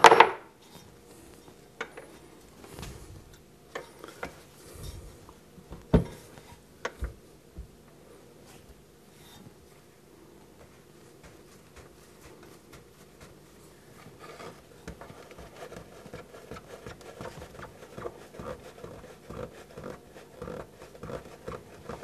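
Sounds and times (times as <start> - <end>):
hand tool scraping: 14.0 - 22.0.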